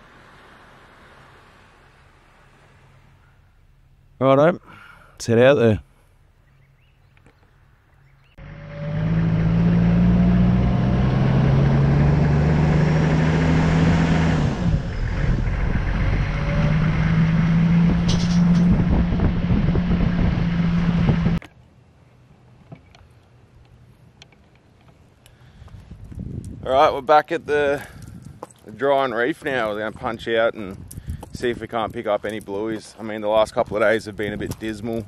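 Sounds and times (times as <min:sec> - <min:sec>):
off-road vehicle engine: 0:06.5 - 0:21.6.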